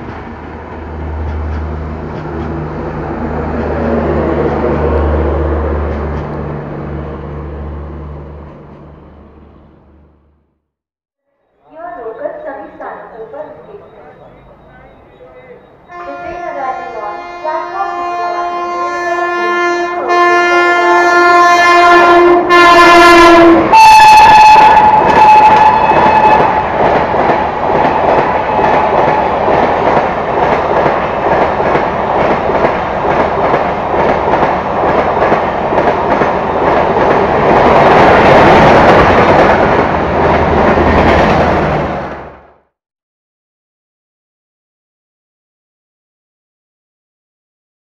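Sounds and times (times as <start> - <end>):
train coaches rumbling past: 0.0 - 10.4, 11.6 - 42.7
locomotive horn: 15.8 - 26.8.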